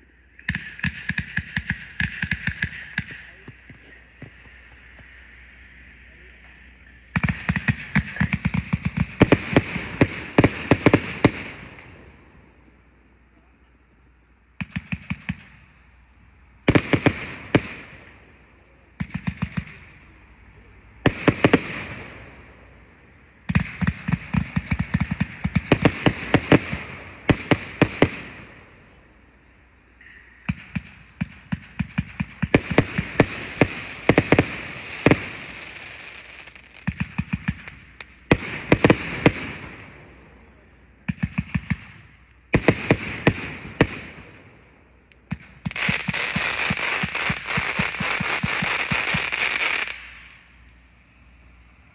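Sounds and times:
fireworks shots firing: 0.4s - 5.3s, 7.0s - 12.8s, 14.6s - 15.9s, 16.6s - 20.2s, 21.0s - 22.8s, 23.4s - 50.6s
fireworks hiss: 0.5s - 12.1s, 30.2s - 39.7s, 45.3s - 50.6s.

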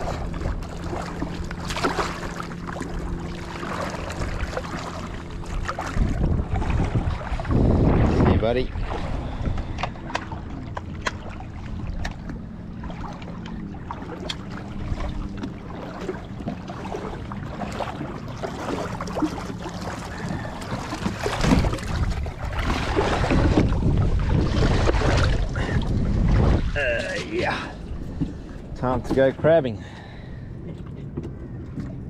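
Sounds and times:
boat engine hum: 0.0s - 32.0s
water noise: 0.0s - 32.0s
wind on microphone: 5.4s - 10.2s, 21.1s - 29.3s.

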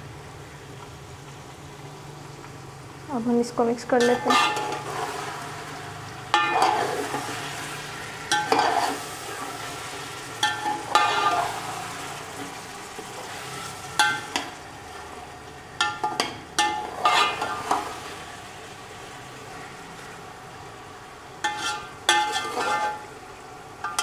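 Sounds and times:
food sizzling: 0.0s - 24.0s
metal spatula scraping pot: 4.0s - 5.6s, 6.3s - 12.6s, 15.8s - 18.0s, 21.4s - 23.1s.

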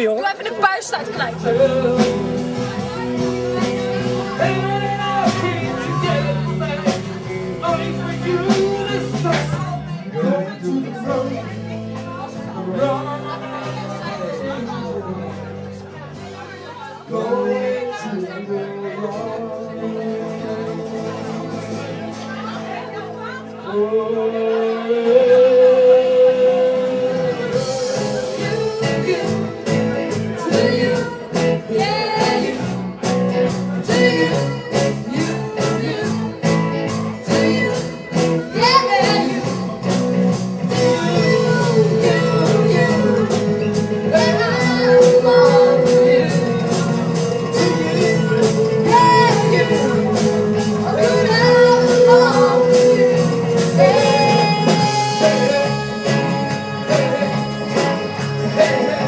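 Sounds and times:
man and woman singing: 0.0s - 33.0s, 33.7s - 40.0s, 40.7s - 59.0s
acoustic and electric guitars: 0.0s - 59.0s
bass guitar: 0.0s - 59.0s
drum kit beat: 0.8s - 9.8s, 26.4s - 59.0s.

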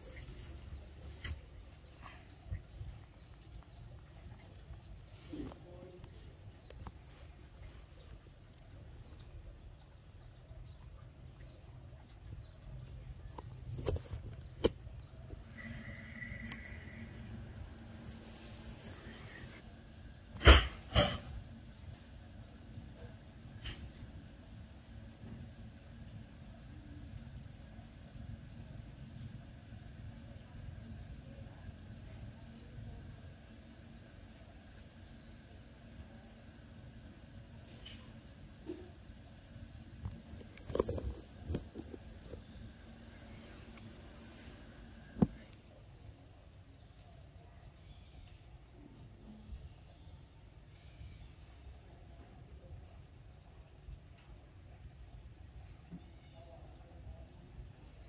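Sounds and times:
faint steady hum: 0.0s - 58.0s
faint high chirps: 24.8s - 57.2s.

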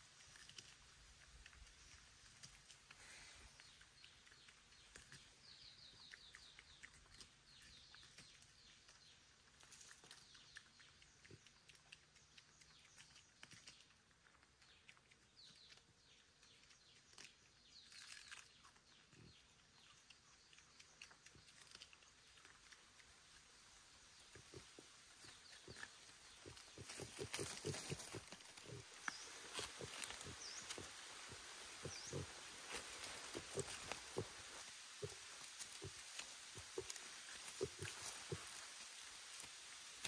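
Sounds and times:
dry leaves crackling and rustling: 25.2s - 40.0s.

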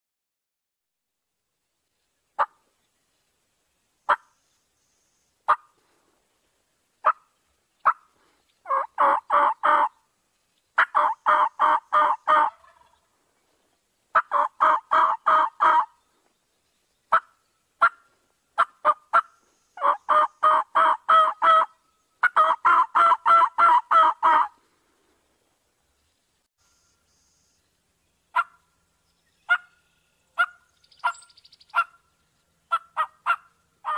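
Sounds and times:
turkey clucking and yelping: 4.1s - 4.3s, 7.8s - 10.0s, 10.8s - 13.1s, 14.1s - 16.0s, 17.1s - 24.6s, 28.3s - 28.6s, 29.4s - 32.0s, 32.7s - 33.9s.

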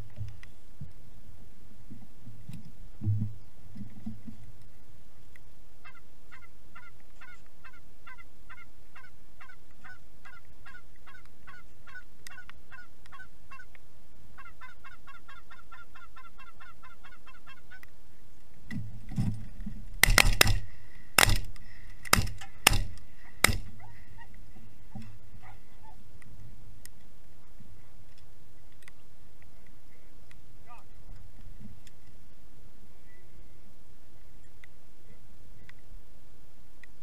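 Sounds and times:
goose clucking calls: 5.8s - 13.8s, 14.4s - 17.9s, 22.1s - 26.0s
shotgun shots: 20.0s - 23.8s.

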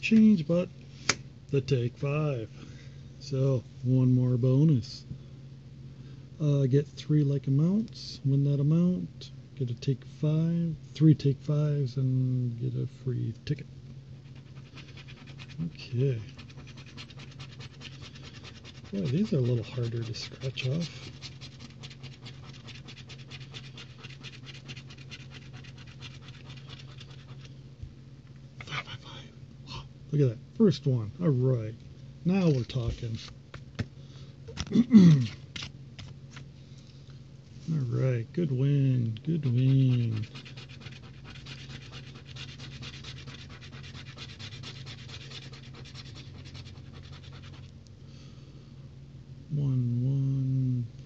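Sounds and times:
coin scraping scratch card: 14.2s - 27.5s, 39.3s - 47.7s.

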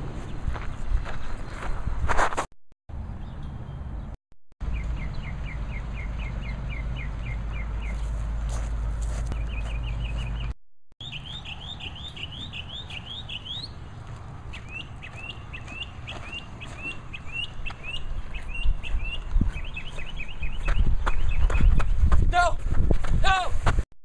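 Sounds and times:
footsteps on gravel: 0.0s - 2.5s, 7.7s - 10.5s, 11.2s - 23.8s
bird chirping: 3.0s - 8.2s, 9.3s - 22.1s.

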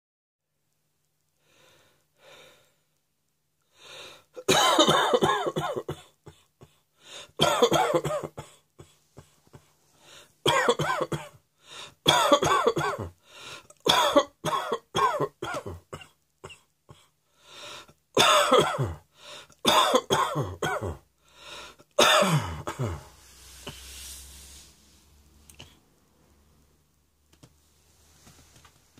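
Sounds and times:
person breathing: 1.4s - 3.0s, 3.6s - 4.4s, 6.6s - 7.4s, 8.8s - 10.4s, 11.6s - 12.0s, 13.2s - 13.8s, 16.9s - 18.0s, 19.1s - 19.6s, 21.2s - 26.0s
person coughing hard: 4.4s - 6.8s, 7.4s - 9.7s, 10.4s - 11.4s, 12.1s - 13.2s, 13.8s - 17.1s, 18.2s - 19.0s, 19.6s - 21.0s, 22.0s - 23.2s.

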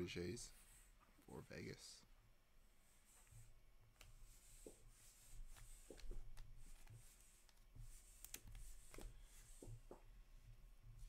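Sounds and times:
trading cards clicking and rubbing: 4.0s - 9.9s.

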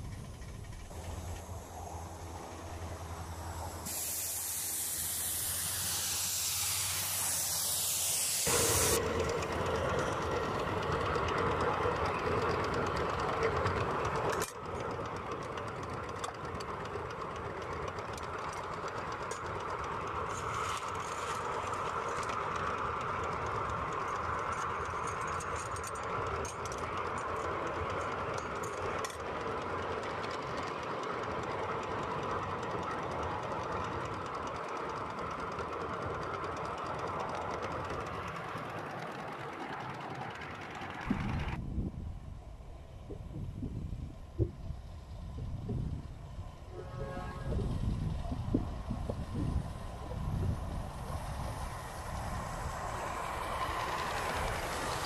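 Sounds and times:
steam locomotive running: 0.0s - 55.0s
loud steam hiss: 0.9s - 10.6s, 49.5s - 55.0s.

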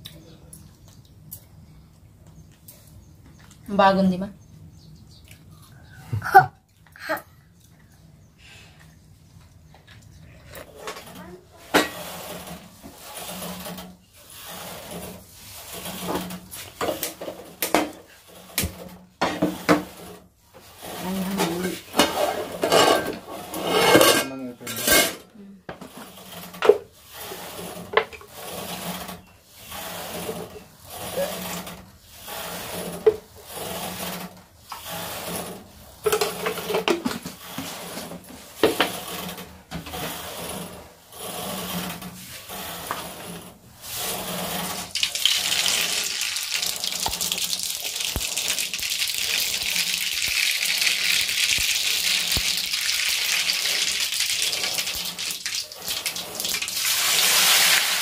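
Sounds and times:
pots and jar clattering: 21.3s - 26.0s
cooking oil sizzling: 44.9s - 58.0s.

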